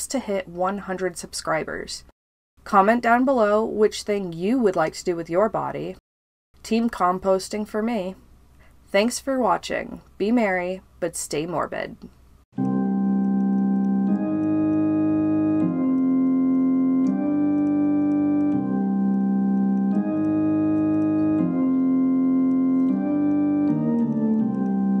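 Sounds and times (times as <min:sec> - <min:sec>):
quick run of notes: 0:12.6 - 0:25.0
slow sustained music chords: 0:12.6 - 0:25.0.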